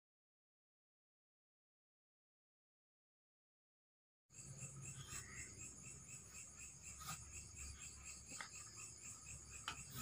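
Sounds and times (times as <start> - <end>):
night insects chirping: 4.3 - 10.0.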